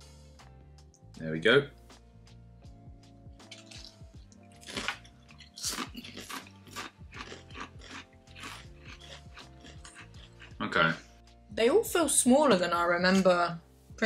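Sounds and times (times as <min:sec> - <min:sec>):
quiet background music: 0:00.0 - 0:14.0
person crunching potato crisps: 0:03.4 - 0:10.6.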